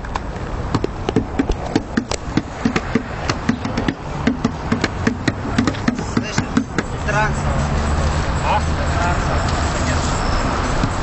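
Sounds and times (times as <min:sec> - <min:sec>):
sharp clacks and knocks: 0:00.0 - 0:07.0.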